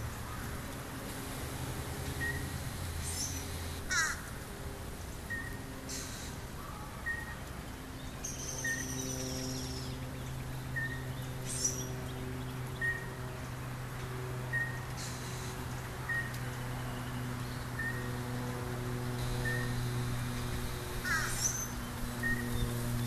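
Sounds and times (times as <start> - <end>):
steady low hum: 0.0 - 23.0
birds whistling: 8.2 - 13.2, 14.5 - 18.2, 21.0 - 23.0.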